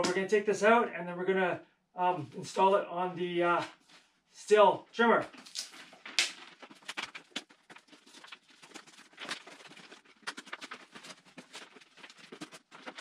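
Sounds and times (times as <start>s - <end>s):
plastic packaging crinkling: 5.3s - 13.0s.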